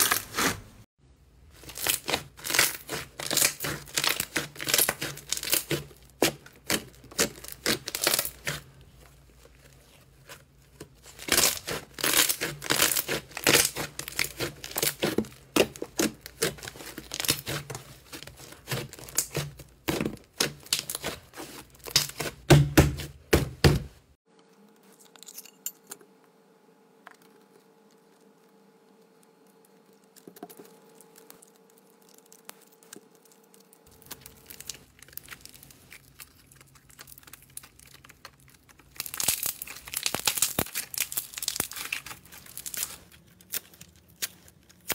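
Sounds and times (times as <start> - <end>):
slime crackling and popping: 1.6 - 8.6, 11.0 - 19.6, 30.0 - 44.9
faint steady hum: 24.3 - 44.9.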